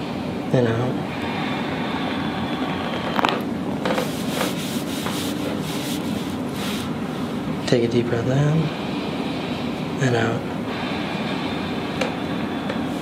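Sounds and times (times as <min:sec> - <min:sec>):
hands rubbing on cotton shirt: 0:04.0 - 0:07.0.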